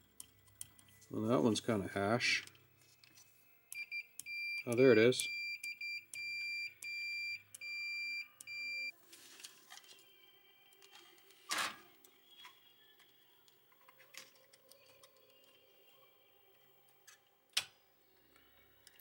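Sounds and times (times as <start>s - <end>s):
multimeter beeps: 3.7s - 8.9s.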